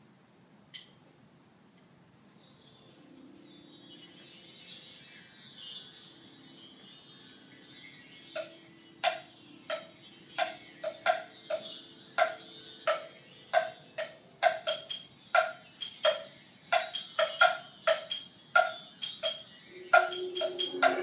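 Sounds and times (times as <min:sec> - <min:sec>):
shimmering metallic percussion: 0:02.2 - 0:21.0
pitched mallet notes: 0:08.4 - 0:21.0
sustained low notes: 0:19.7 - 0:21.0.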